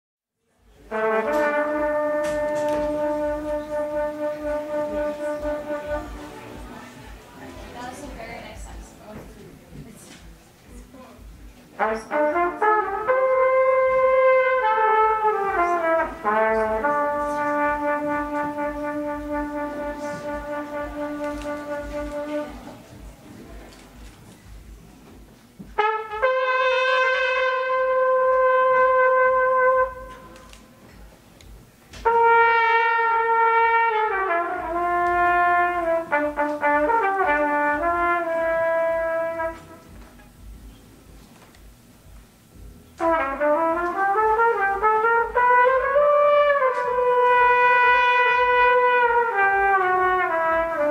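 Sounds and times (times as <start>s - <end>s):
trumpet playing slow solo: 0.8s - 7.2s, 11.8s - 23.1s, 25.7s - 30.8s, 32.0s - 40.5s, 42.6s - 50.9s.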